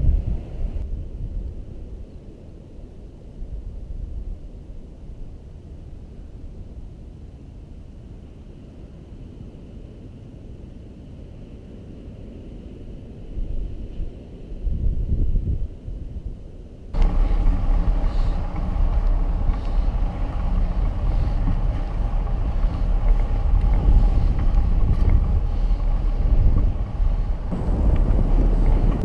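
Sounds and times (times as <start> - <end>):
wind buffeting microphone: 0.0 - 29.0
faint steady hum: 15.9 - 29.0.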